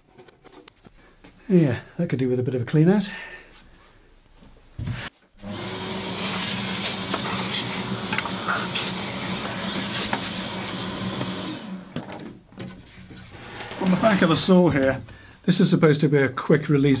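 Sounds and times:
workshop vacuum running: 0:04.9 - 0:12.3, 0:13.3 - 0:15.0.

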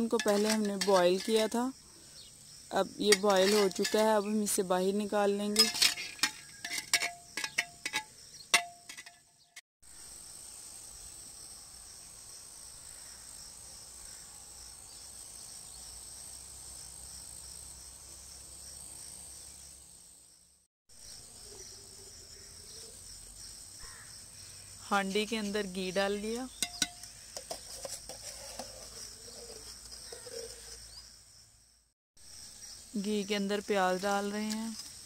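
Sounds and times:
metal ladle clinking: 0:00.0 - 0:01.6, 0:03.0 - 0:04.3, 0:05.5 - 0:09.6, 0:26.5 - 0:30.8
insects chirring: 0:00.0 - 0:09.4, 0:10.0 - 0:35.0.

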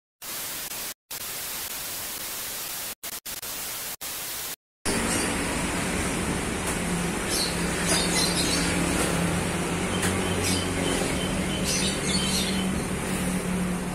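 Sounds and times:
tv static hiss: 0:00.2 - 0:04.6.

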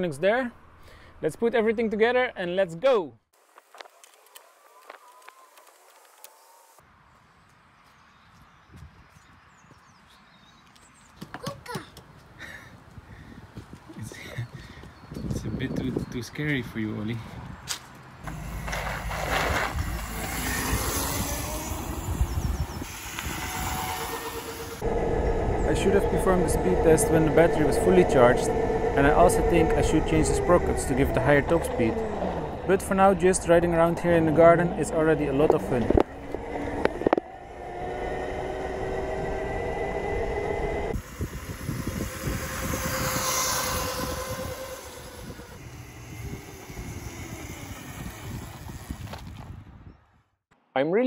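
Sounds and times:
road and tyre noise: 0:03.4 - 0:50.4
wind rumbling on microphone: 0:12.7 - 0:17.7, 0:18.3 - 0:50.2
electric bike motor whir: 0:18.3 - 0:26.8, 0:35.4 - 0:49.8.

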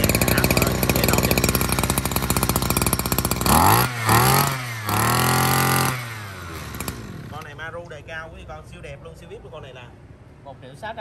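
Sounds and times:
brush-cutter engine idling and revving: 0:00.0 - 0:07.8.

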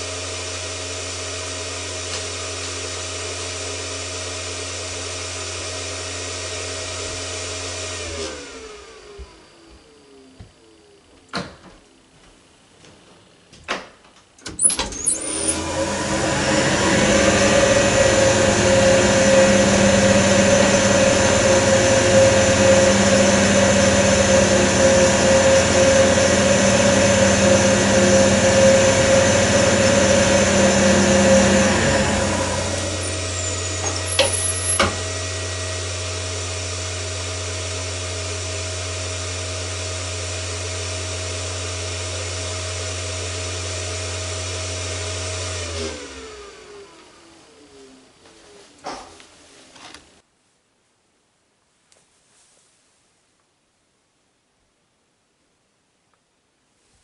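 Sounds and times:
electric motor humming and whining: 0:00.0 - 0:11.3, 0:15.0 - 0:48.0.

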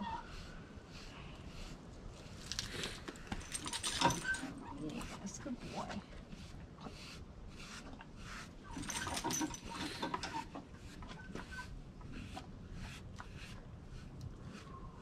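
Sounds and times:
brush strokes on horse coat: 0:04.7 - 0:08.6.

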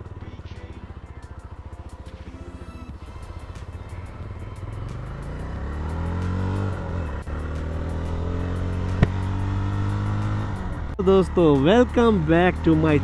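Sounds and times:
motorcycle engine accelerating: 0:00.0 - 0:13.0
sharp click: 0:08.9 - 0:09.3.

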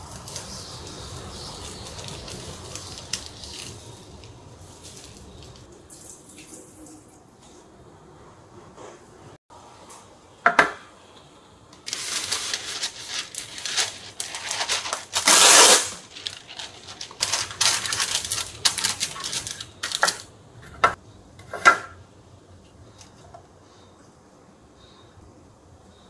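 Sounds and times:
wax paper crinkling: 0:00.0 - 0:05.7, 0:11.8 - 0:20.3.

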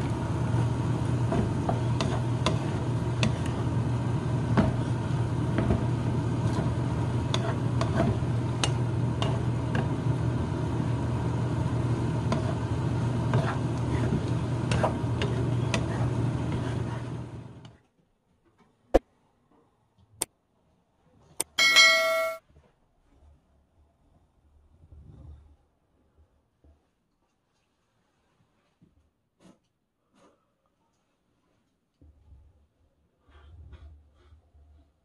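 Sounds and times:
wooden spatula scraping pan: 0:01.2 - 0:03.7, 0:06.5 - 0:09.5, 0:12.3 - 0:17.0.

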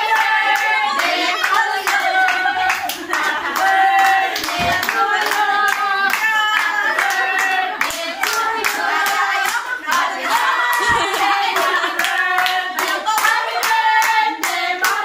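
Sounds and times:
people clapping in time: 0:00.0 - 0:15.0
women singing together: 0:00.0 - 0:15.0.

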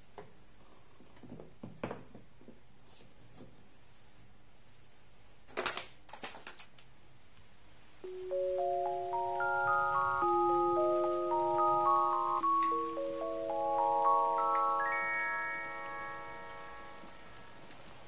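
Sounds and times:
chiming mallet music: 0:08.0 - 0:17.8.

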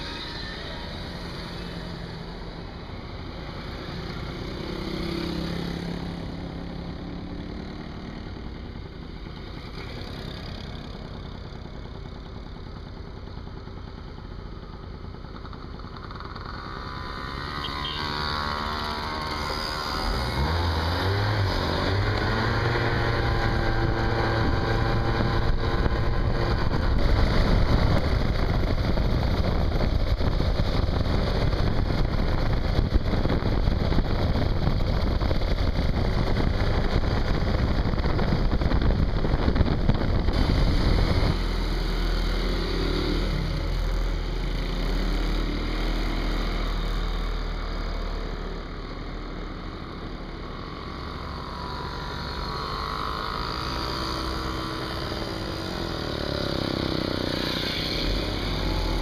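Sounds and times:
moped engine running: 0:00.0 - 0:59.0
mopeds puttering past: 0:15.4 - 0:28.3
wind rush on microphone: 0:23.0 - 0:41.6.

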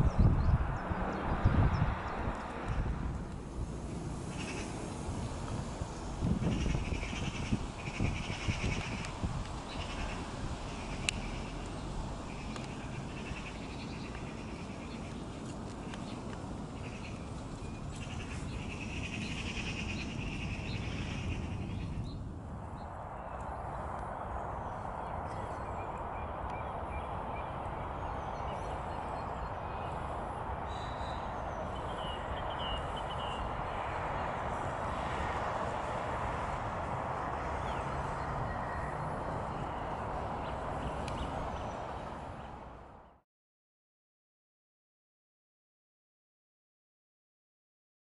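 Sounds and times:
steady rushing noise: 0:00.0 - 0:43.1
faint bird calls: 0:04.3 - 0:04.8, 0:09.7 - 0:11.7, 0:17.9 - 0:22.0.

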